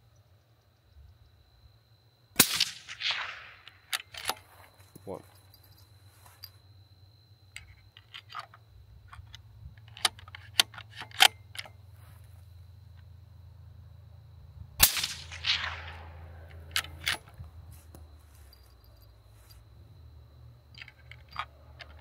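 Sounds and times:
suppressed rifle shot: 2.4 - 4.4, 14.8 - 17.2
rifle bolt clicking: 9.1 - 11.7.

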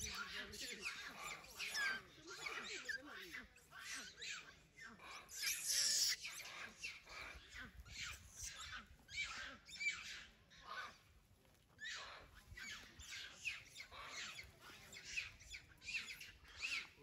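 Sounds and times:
monkey screaming: 5.3 - 6.4.

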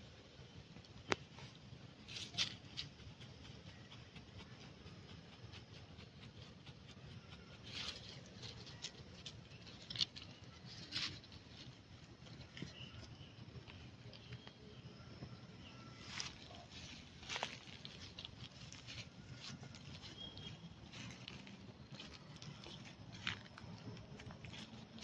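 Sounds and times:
faint rustling: 16.0 - 25.0.

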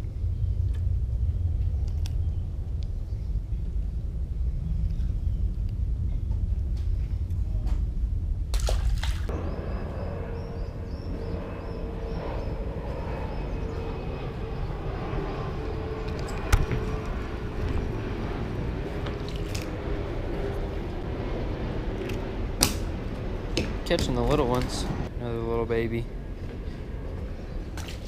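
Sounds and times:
steady low rumble: 0.0 - 28.0
fish splashing into water: 8.6 - 9.3.

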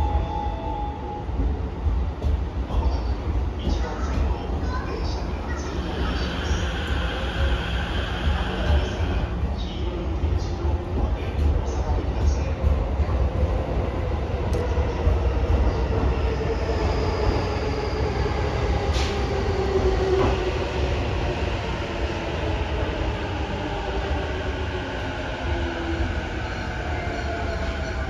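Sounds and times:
train rumble on rails: 0.0 - 28.0.

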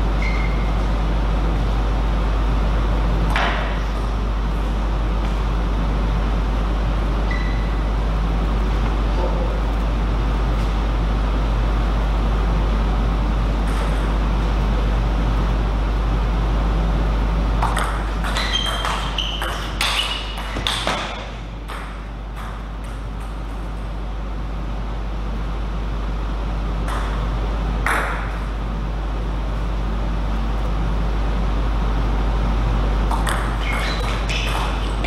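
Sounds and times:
steady low hum: 0.0 - 35.0
table tennis ball hits: 17.6 - 23.6, 26.8 - 27.2, 27.8 - 28.4, 33.1 - 35.0.

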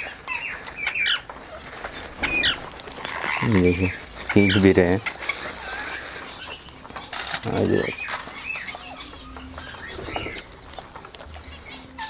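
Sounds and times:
parakeets chirping: 0.0 - 12.0
wing flaps: 1.6 - 4.1.

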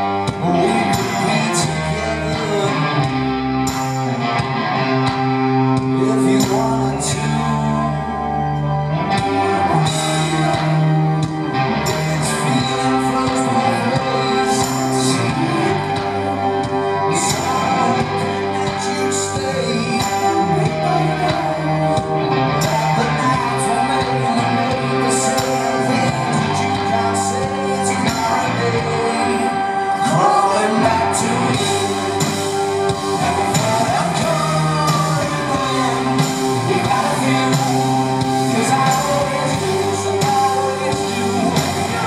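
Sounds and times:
electric guitar: 0.0 - 42.0
held bass notes: 0.0 - 42.0
man singing: 0.0 - 42.0
drums with cymbal hits: 31.5 - 42.0.

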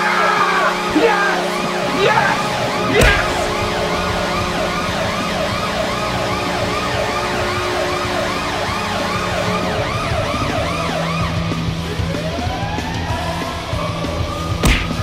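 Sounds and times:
electronic siren wailing: 0.0 - 14.6
steady low tone: 1.7 - 11.8.

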